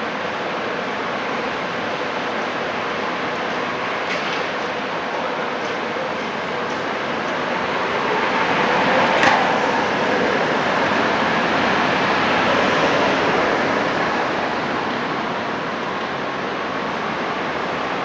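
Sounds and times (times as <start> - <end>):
tram wheels rumbling on rails: 0.0 - 18.0
sharp clack: 9.0 - 10.2.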